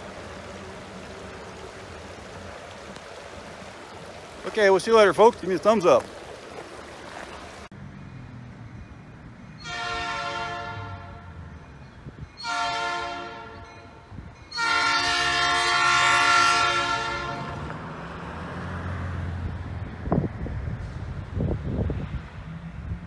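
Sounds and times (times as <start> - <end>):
train rumble: 0.0 - 23.0
locomotive air horn blasts: 9.6 - 11.5, 12.4 - 17.7.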